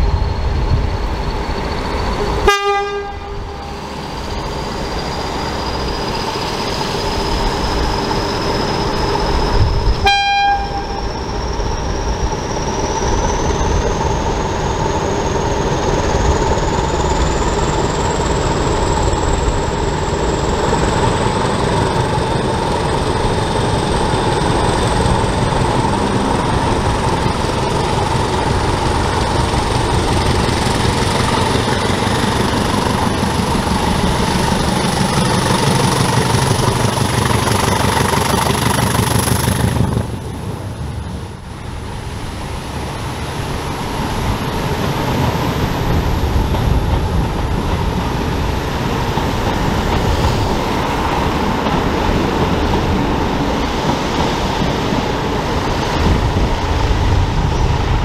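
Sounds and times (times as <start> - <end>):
high whistle rising in pitch: 0.0 - 14.0
diesel locomotive engine: 0.0 - 58.0.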